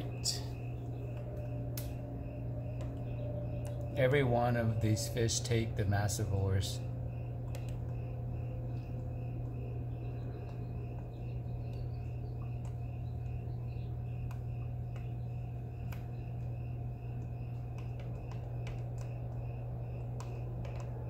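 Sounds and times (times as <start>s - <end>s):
air pump humming: 0.0s - 21.0s
faint high chirp: 0.0s - 21.0s
small clicks: 7.4s - 8.1s, 15.8s - 21.0s.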